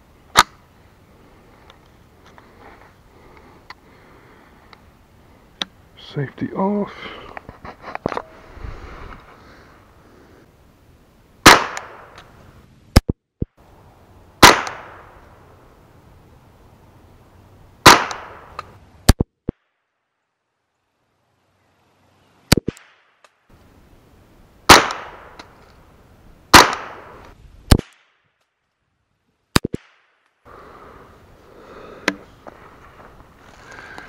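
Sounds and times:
rifle shots: 11.4 - 12.2, 14.4 - 15.1, 17.8 - 18.5, 24.7 - 25.4, 26.5 - 28.0.

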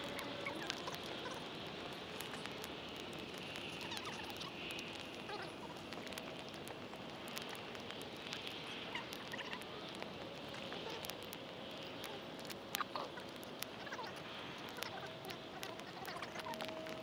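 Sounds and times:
faint bird calls: 0.0 - 6.6, 8.4 - 17.0
campfire crackling and popping: 0.0 - 17.0.

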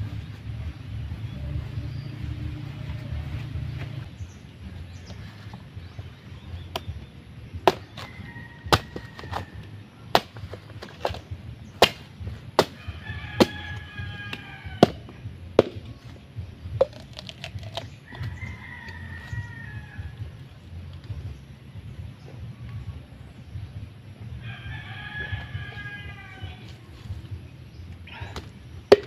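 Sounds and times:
machete chopping coconut husk: 6.6 - 16.1, 16.8 - 18.3, 28.2 - 29.0
rooster crowing: 7.8 - 9.8, 12.7 - 15.2, 18.0 - 20.4, 24.4 - 27.1.

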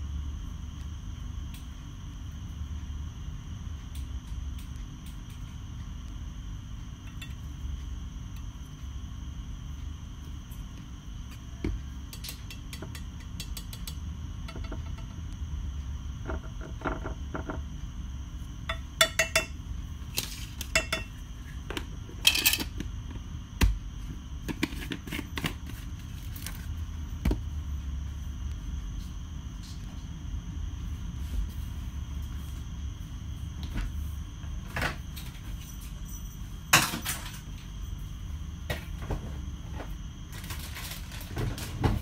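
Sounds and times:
steady low hum: 0.0 - 42.0
metal spoon tapping ceramic dish: 18.7 - 19.6, 20.7 - 21.1.

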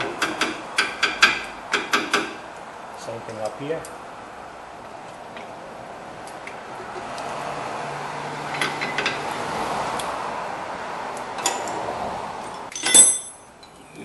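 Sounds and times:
workshop background noise: 0.0 - 7.6
sharp metal clink: 12.7 - 13.5.

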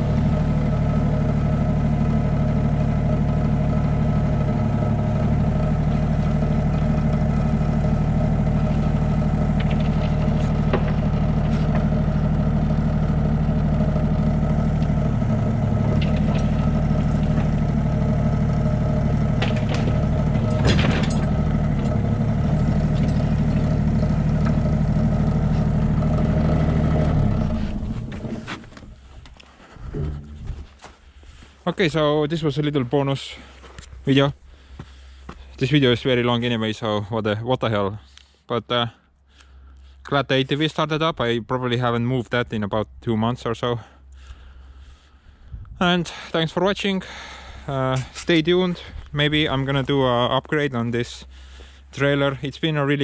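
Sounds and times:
diesel engine running: 0.0 - 36.3, 40.7 - 53.0
metal clank: 15.8 - 17.7, 19.3 - 24.6.

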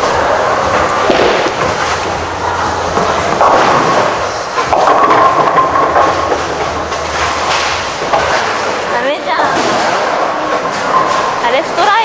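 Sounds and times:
bowling pins crashing: 0.0 - 8.8
bowling balls rolling: 0.0 - 11.9.

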